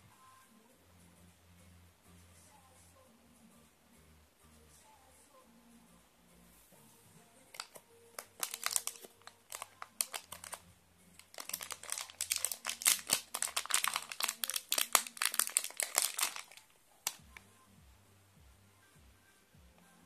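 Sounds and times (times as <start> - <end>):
plastic bag crinkling: 7.5 - 10.6, 11.2 - 17.2.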